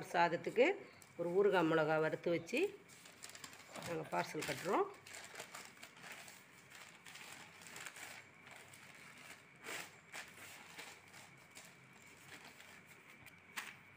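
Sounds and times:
newspaper crinkling: 2.8s - 13.9s
newspaper rustling: 2.8s - 13.9s.

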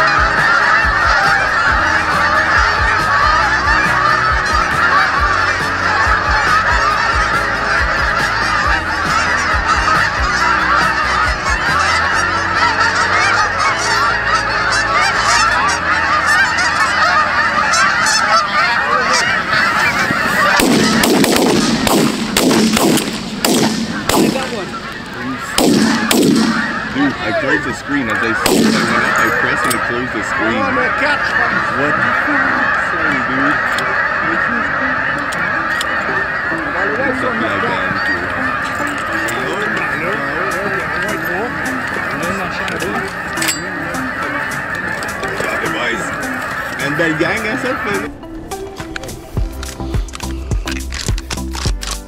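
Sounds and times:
geese honking: 0.0s - 52.0s
sharp sudden sounds: 20.4s - 27.1s.

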